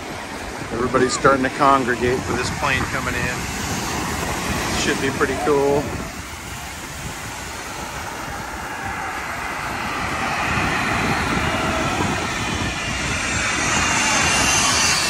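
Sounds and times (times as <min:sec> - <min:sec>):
jet engines whining: 0:00.0 - 0:15.0.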